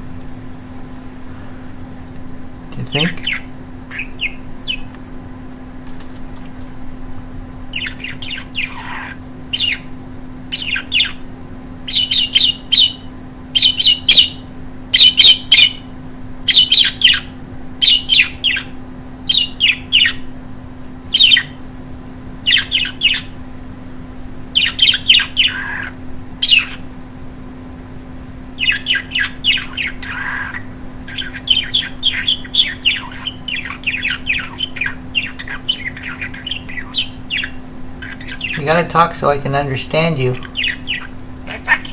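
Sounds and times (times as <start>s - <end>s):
budgerigar chattering: 2.8s - 4.9s, 7.7s - 9.9s, 10.5s - 11.3s, 11.9s - 15.9s, 16.5s - 20.3s, 21.1s - 21.6s, 22.4s - 23.4s, 24.6s - 26.9s, 28.6s - 41.9s.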